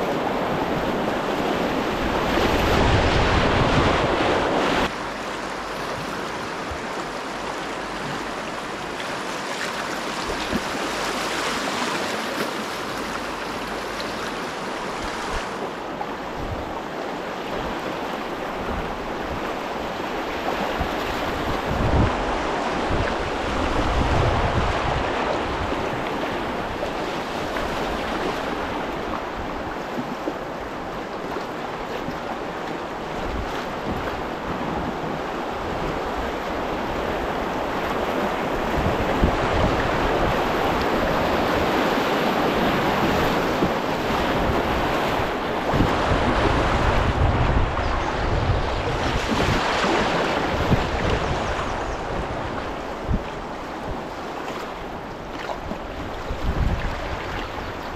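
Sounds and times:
river rapids splashing: 0.0 - 15.6
wind buffeting microphone: 20.7 - 26.8, 33.2 - 54.2, 55.0 - 57.9.

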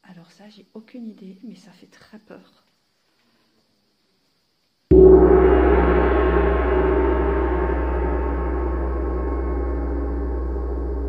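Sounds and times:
gong ringing: 4.9 - 11.0.

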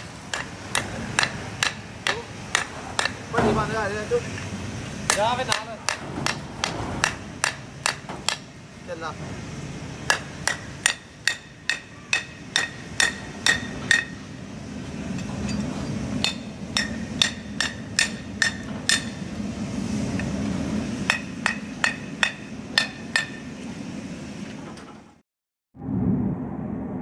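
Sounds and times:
hammer ringing on metal: 10.1 - 14.3, 16.2 - 19.2, 21.1 - 23.5
low rumble: 25.8 - 27.0.

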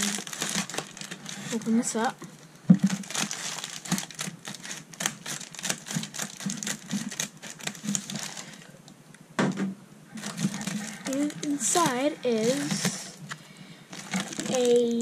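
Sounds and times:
scissors snipping plastic: 2.8 - 8.3.

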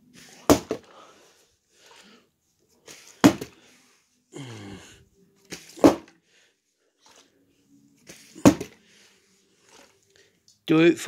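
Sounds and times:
plastic bottle thudding on floor: 0.4 - 0.9, 3.2 - 3.6, 5.5 - 6.2, 8.1 - 8.8.

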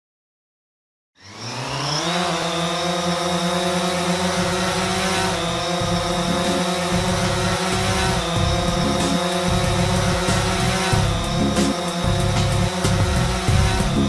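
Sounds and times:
drone rotors whining: 1.2 - 14.0.

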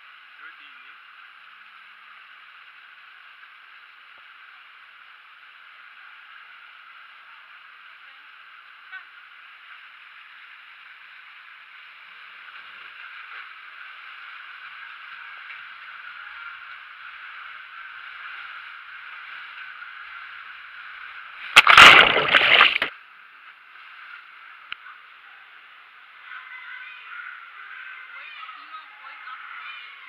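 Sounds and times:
water rushing into a tube slide: 21.6 - 22.9.

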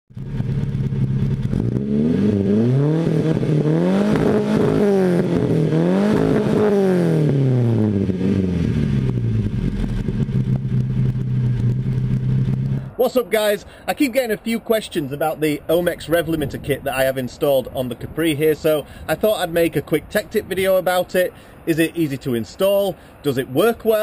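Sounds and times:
car engine idling and revving: 0.1 - 13.0.

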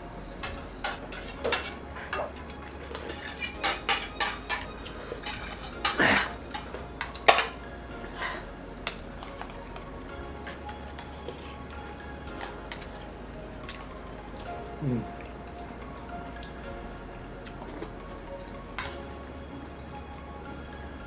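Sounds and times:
spoons clinking on steel plates: 0.3 - 7.6, 12.4 - 13.0, 18.8 - 19.0.

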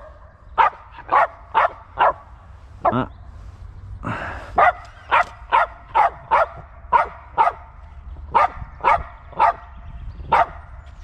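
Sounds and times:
dog barking: 0.0 - 3.0, 4.6 - 7.7, 8.3 - 9.7, 10.3 - 10.7.

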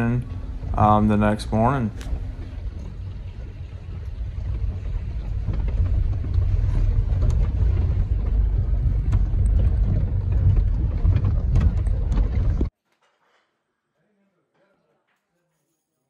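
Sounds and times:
engine and tyres rumbling: 0.0 - 12.7.

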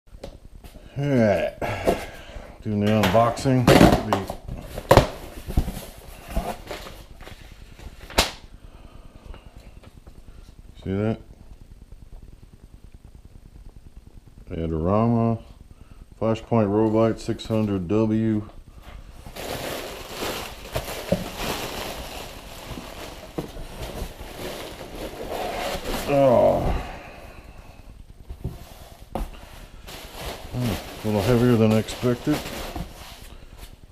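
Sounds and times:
plastic packing crinkling: 19.0 - 26.6, 29.2 - 33.8
paper rustling: 28.4 - 33.8.

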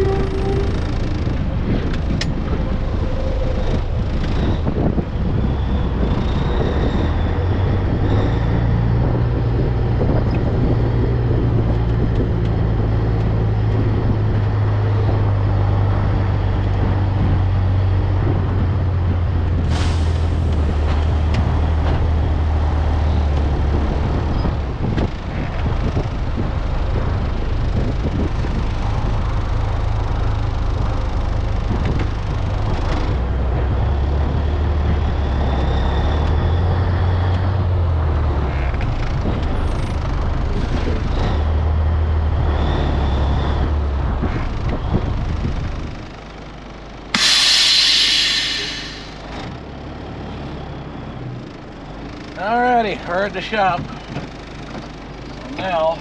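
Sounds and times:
diesel engine drone: 0.0 - 56.0
short sharp noise: 47.2 - 49.3.

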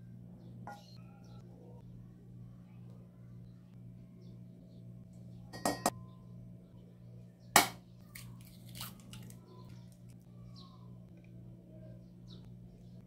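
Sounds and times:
steady low hum: 0.0 - 8.5, 9.3 - 13.0
egg cracking on bowl rim: 7.6 - 10.2.

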